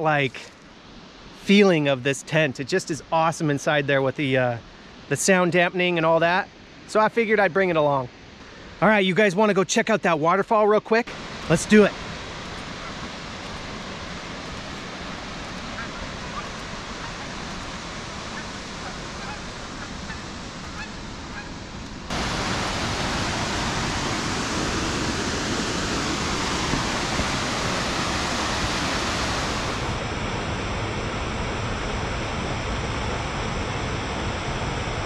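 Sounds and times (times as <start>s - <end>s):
waterfall rushing: 11.1s - 21.3s, 22.1s - 30.2s.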